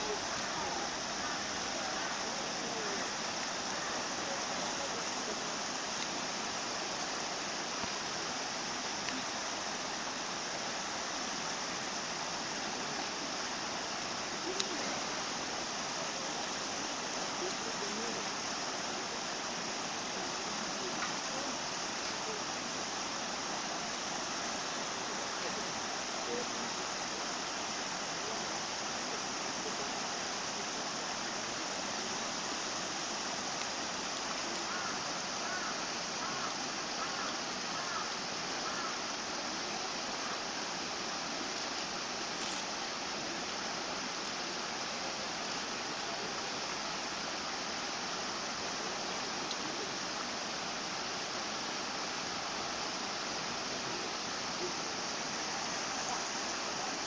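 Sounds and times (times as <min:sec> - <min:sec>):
faint click: 0:06.0 - 0:06.2, 0:09.0 - 0:09.2, 0:21.0 - 0:21.2, 0:42.4 - 0:42.7.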